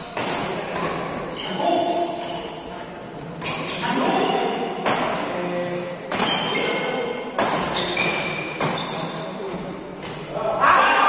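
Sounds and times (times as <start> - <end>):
badminton racket hitting shuttlecock: 4.8 - 6.8, 7.4 - 9.1.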